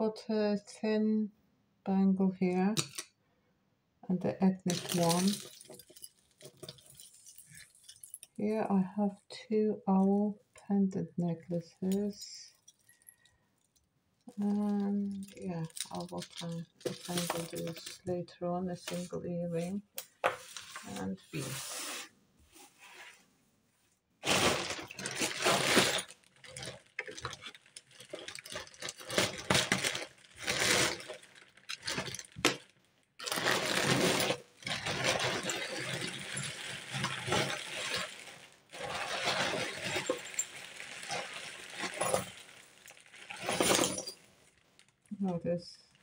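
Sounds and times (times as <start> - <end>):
plastic bag rustling: 4.7 - 8.3, 14.3 - 18.1, 18.8 - 23.2, 24.2 - 45.1
jewellery clinking on table: 43.5 - 44.2.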